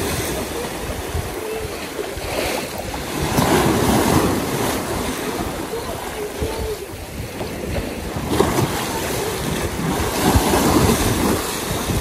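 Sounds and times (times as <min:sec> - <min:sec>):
waves splashing against seawall: 0:00.0 - 0:12.0
wind buffeting microphone: 0:00.0 - 0:12.0.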